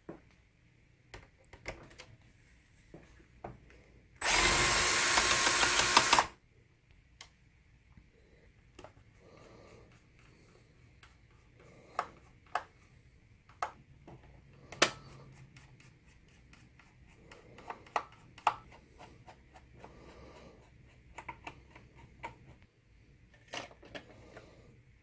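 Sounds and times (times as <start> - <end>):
screws clicking on sheet metal: 4.2 - 6.3.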